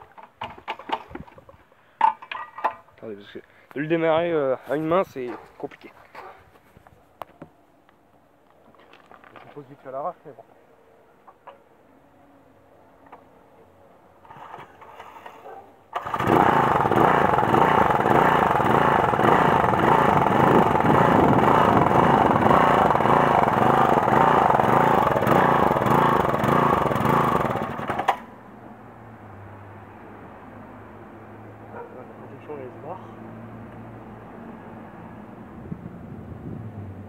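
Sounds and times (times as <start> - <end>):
lawnmower engine running: 15.9 - 28.3
recoil starter pull: 16.0 - 28.2.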